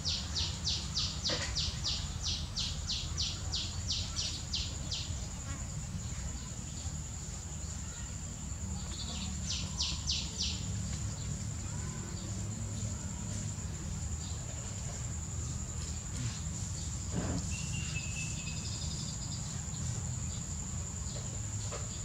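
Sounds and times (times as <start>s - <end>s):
small bird chirping: 0.0s - 5.4s, 8.8s - 12.3s, 15.8s - 20.4s.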